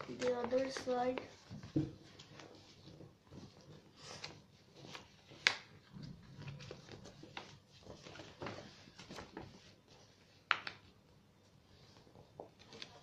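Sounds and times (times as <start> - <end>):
sharp paper crackles: 0.0 - 9.8
paper rustling and crinkling: 0.0 - 10.9, 11.7 - 13.0.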